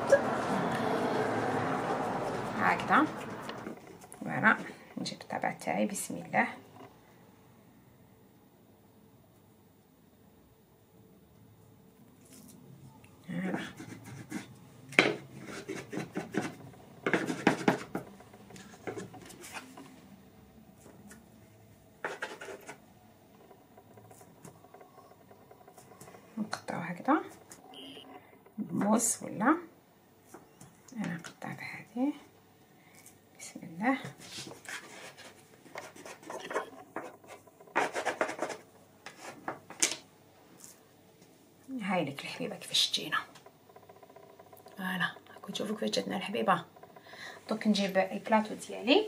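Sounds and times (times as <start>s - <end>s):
blade cutting dough and scraping table: 0.2s - 4.0s, 13.5s - 19.8s, 22.0s - 22.8s, 34.0s - 39.6s
wooden and plastic tools tapping table: 36.2s - 40.0s.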